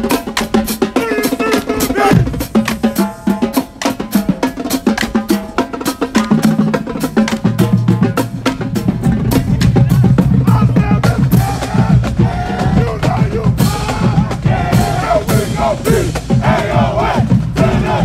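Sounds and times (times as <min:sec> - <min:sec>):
people chanting and shouting: 0:00.7 - 0:03.0, 0:08.0 - 0:18.0
bass drums pounding: 0:01.9 - 0:03.4, 0:06.8 - 0:18.0.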